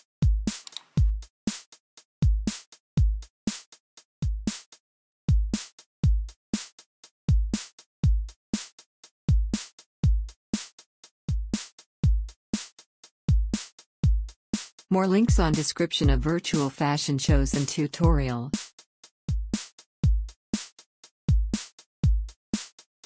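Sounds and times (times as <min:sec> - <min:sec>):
drum machine beat: 0:00.2 - 0:01.3, 0:02.2 - 0:03.3, 0:07.3 - 0:08.4, 0:09.3 - 0:10.4, 0:11.3 - 0:12.4, 0:13.3 - 0:18.7, 0:19.3 - 0:20.7, 0:21.3 - 0:22.7.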